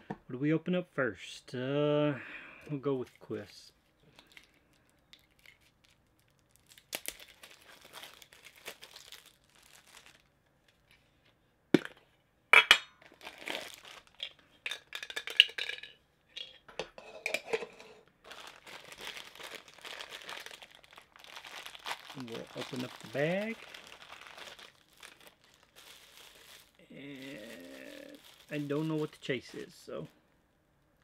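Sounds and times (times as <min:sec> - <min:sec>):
plastic crinkling and rustling: 0:03.0 - 0:11.1, 0:13.0 - 0:15.5, 0:18.2 - 0:30.1.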